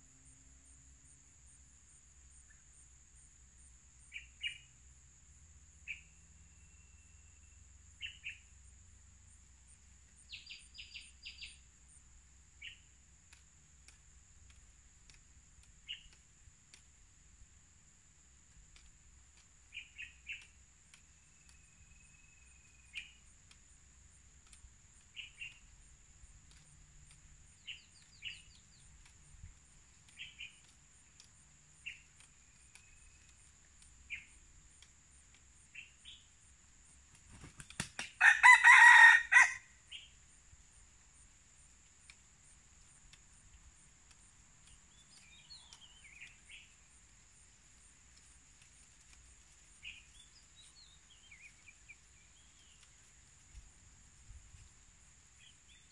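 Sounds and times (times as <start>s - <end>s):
small birds chirping: 1.4s - 5.0s, 5.7s - 38.2s, 39.8s - 55.9s
rooster crowing: 38.2s - 39.8s.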